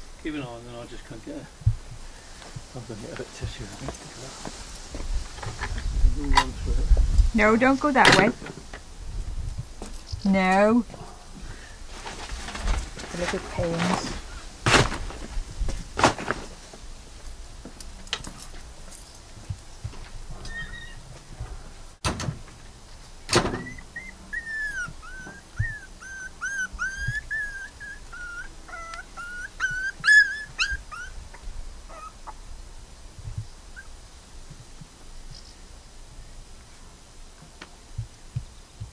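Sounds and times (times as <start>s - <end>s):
puppy whimpering: 20.4s - 21.0s, 23.6s - 31.2s, 31.9s - 32.4s
sharp knocks: 22.0s - 22.6s.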